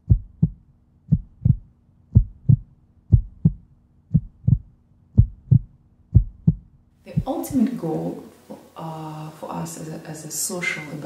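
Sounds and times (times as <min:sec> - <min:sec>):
heartbeat thumps: 0:00.0 - 0:07.6
faint low hum: 0:00.0 - 0:11.0.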